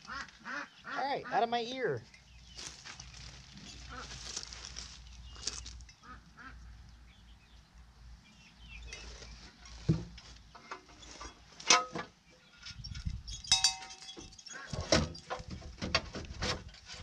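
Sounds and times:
poultry nasal calls: 0.0 - 1.8, 3.7 - 4.6.

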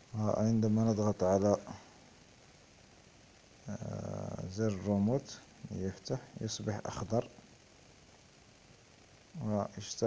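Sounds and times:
man speaking: 0.1 - 1.9, 3.7 - 7.4, 9.4 - 10.0.

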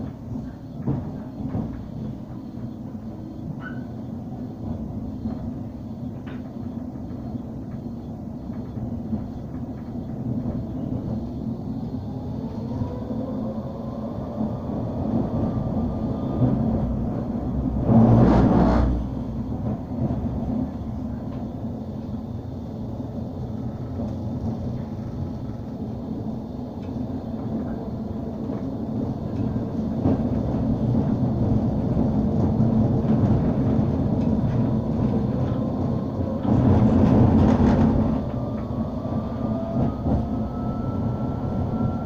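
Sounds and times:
tram rumbling on rails: 0.0 - 42.0
loud rushing noise: 15.8 - 19.5
traction motor whine: 33.0 - 42.0.

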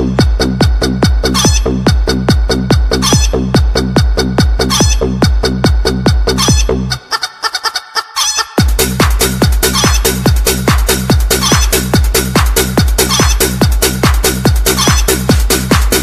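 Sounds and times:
pounding kick-drum beat: 0.0 - 6.9, 8.6 - 16.0
electronic dance music: 0.0 - 16.0
clucking chicken sounds: 1.3 - 1.6, 3.0 - 3.4, 6.4 - 8.6.

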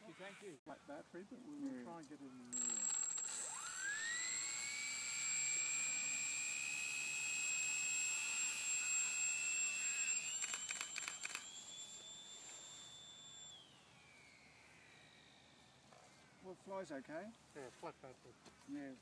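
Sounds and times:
model glider motor whining: 2.6 - 16.4.

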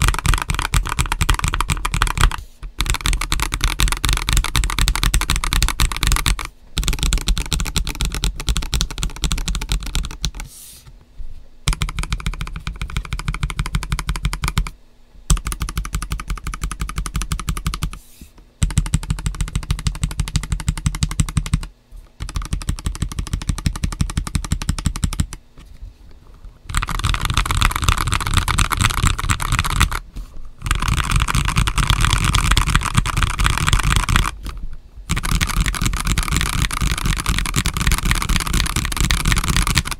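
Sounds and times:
fast mechanical keyboard typing: 0.0 - 10.5, 11.7 - 18.0, 18.6 - 25.4, 26.7 - 30.0, 30.6 - 39.9.

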